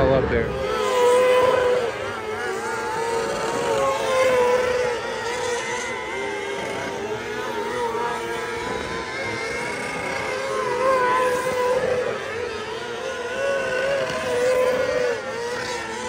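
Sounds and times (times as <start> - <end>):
race car engine running hard: 0.0 - 16.0.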